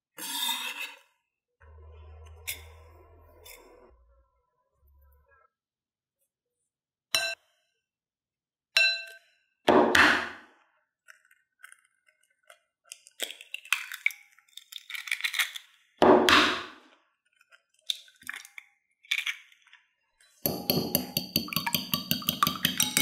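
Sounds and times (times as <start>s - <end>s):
eggs cracking: 11.0s - 15.9s, 17.3s - 19.8s, 20.5s - 23.0s
spoon clinking on ceramic bowl: 20.4s - 23.0s
fork tapping glass: 20.5s - 23.0s.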